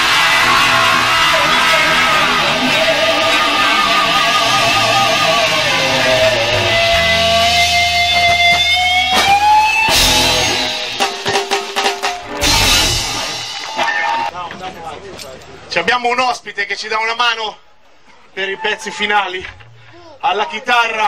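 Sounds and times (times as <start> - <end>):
electric guitar holding long notes: 0.0 - 14.3
sharp hit: 7.3 - 14.0.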